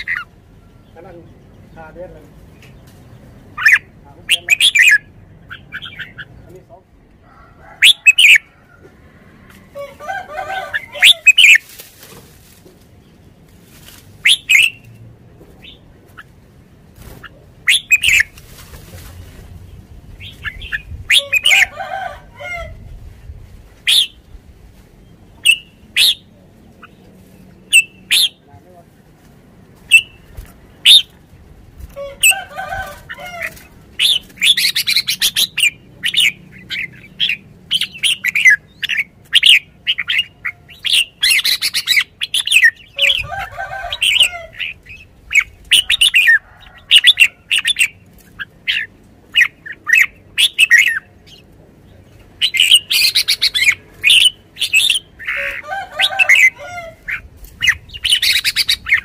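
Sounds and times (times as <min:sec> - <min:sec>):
lower-pitched bird call: 0:07.6 - 0:08.6
wings fluttering: 0:09.5 - 0:14.9, 0:16.0 - 0:21.6, 0:29.2 - 0:35.3.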